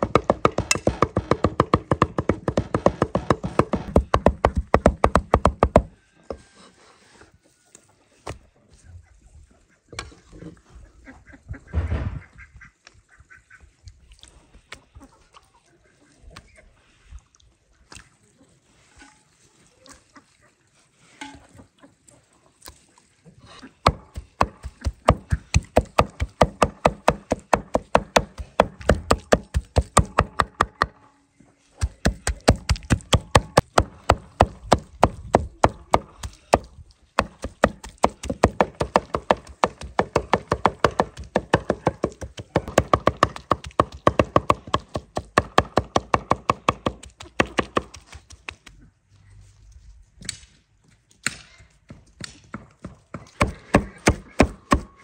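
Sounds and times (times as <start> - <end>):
knives chopping on wooden board: 0.0 - 5.9, 23.8 - 30.9, 31.8 - 48.1, 52.2 - 54.9.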